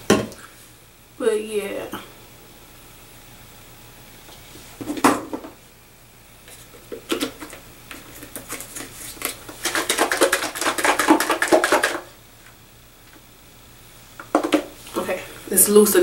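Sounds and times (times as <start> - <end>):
spray bottle shaken sloshing: 8.2 - 12.1.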